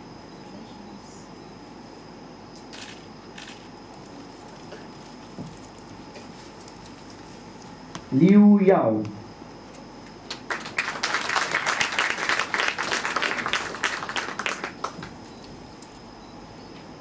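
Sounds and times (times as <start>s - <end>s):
audience applauding: 10.2s - 15.2s.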